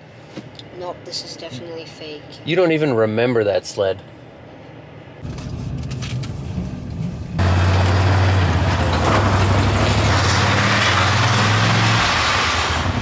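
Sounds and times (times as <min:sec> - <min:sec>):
road noise inside vehicle cab: 0:00.0 - 0:13.0
loud low engine hum: 0:04.2 - 0:13.0.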